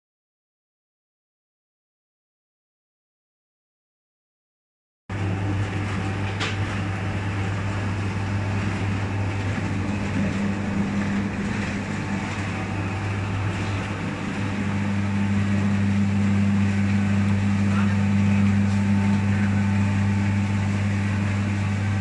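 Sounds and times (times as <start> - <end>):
machine humming and whirring: 5.1 - 22.0.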